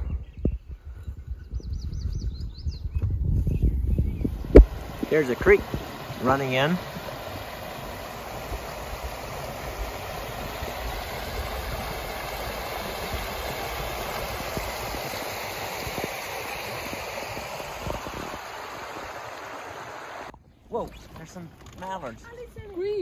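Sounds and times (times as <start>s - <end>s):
creek splashing over rocks: 4.3s - 20.3s.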